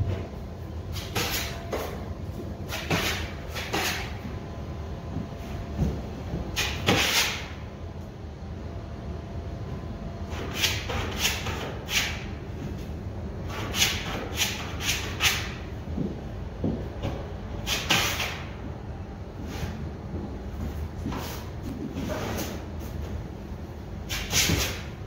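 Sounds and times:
steady low hum: 0.0s - 25.0s
drywall knife scraping compound: 1.0s - 1.9s, 2.7s - 4.2s, 6.6s - 7.6s, 10.3s - 12.3s, 13.4s - 15.6s, 17.6s - 18.5s, 24.1s - 25.0s.

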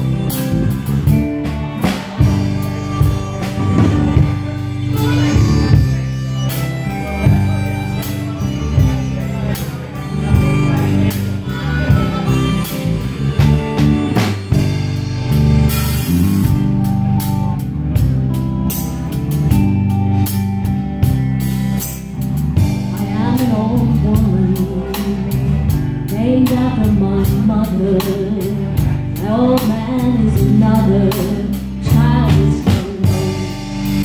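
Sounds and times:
drum kit beat: 0.0s - 34.0s
electric bass: 0.0s - 34.0s
electric guitar: 0.0s - 34.0s
woman singing: 22.9s - 34.0s.

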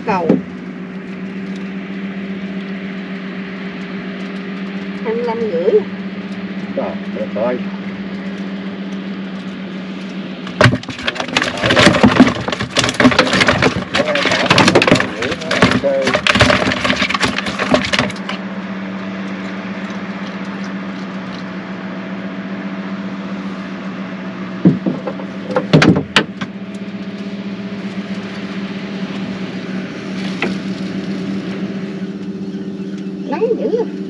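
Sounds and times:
steady motor hum: 0.0s - 34.0s
crackling handling noise: 0.4s - 5.1s, 5.9s - 21.6s, 24.6s - 33.2s
sharp knocks and clatters: 10.5s - 18.4s, 24.6s - 26.6s.

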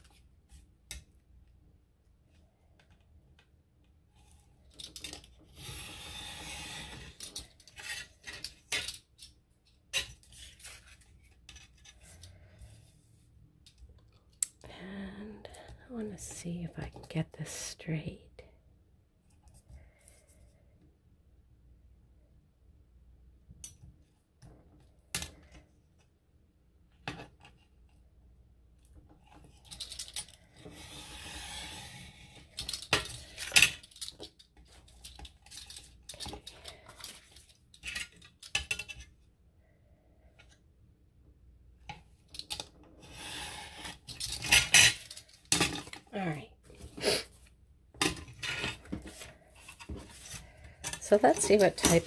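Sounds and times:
rubbing or sliding: 5.6s - 8.4s, 30.6s - 32.5s, 43.0s - 45.2s, 48.4s - 52.0s.

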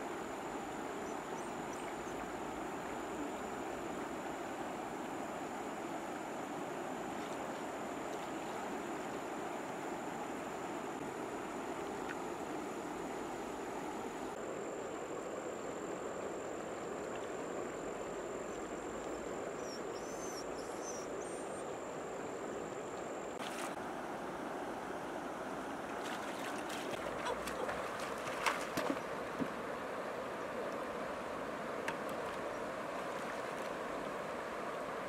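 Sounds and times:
water splashes and knocks: 23.4s - 23.8s, 25.9s - 29.6s, 31.8s - 33.8s.

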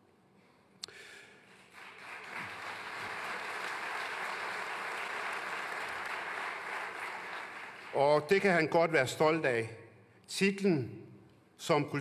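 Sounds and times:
audience applauding: 1.6s - 8.5s.

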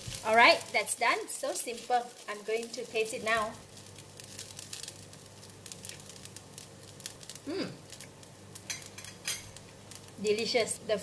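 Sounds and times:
person humming: 7.4s - 7.8s.

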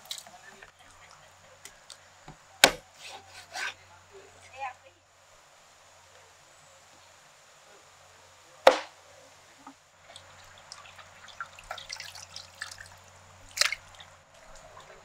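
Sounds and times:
knife chopping on wooden board: 2.6s - 3.7s, 8.7s - 8.9s
water splashing in metal pot: 10.1s - 14.1s.

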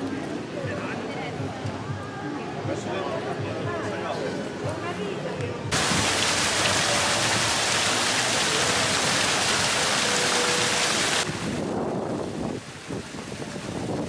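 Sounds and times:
uneven outdoor noise: 0.0s - 14.0s
fountain water splashing: 5.7s - 14.0s.

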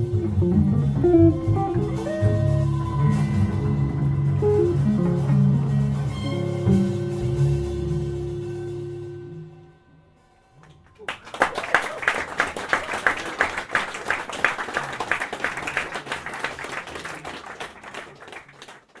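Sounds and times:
audience applauding: 1.6s - 6.2s, 10.6s - 19.0s.

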